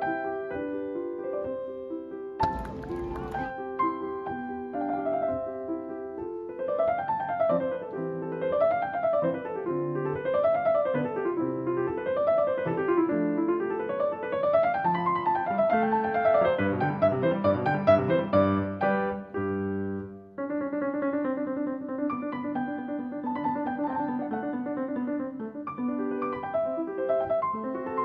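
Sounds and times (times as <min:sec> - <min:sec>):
piano music: 0:00.0 - 0:28.0.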